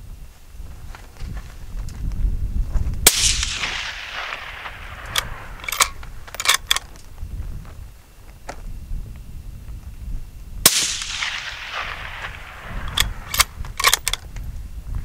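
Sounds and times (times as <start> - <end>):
rifle shot echoing: 3.0 - 6.8, 10.6 - 14.2
rifle bolt clicks: 3.1 - 6.9, 10.8 - 14.3
low rumble: 3.2 - 7.5.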